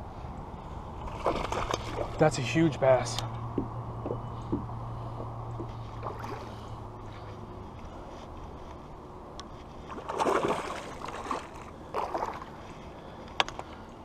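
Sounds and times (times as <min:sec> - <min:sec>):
low water noise: 0:00.0 - 0:14.0
fish splashing at surface: 0:10.0 - 0:12.5.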